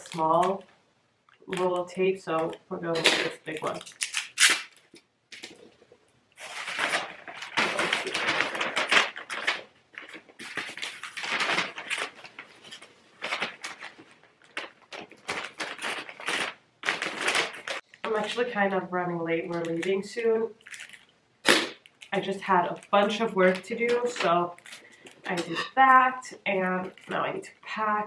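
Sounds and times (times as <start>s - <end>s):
wrapping paper crinkling: 1.3s - 18.4s, 19.6s - 21.2s, 21.8s - 25.4s, 26.6s - 27.4s.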